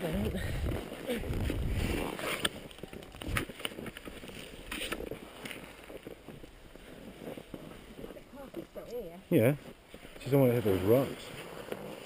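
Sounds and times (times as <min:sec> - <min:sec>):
wind noise on microphone: 0:00.0 - 0:06.5
skis scraping in snow: 0:00.4 - 0:12.0.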